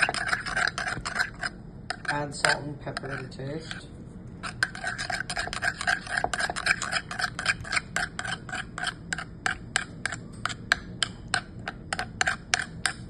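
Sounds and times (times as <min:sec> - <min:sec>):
spoon clicking against ceramic dish: 0:07.7 - 0:13.0.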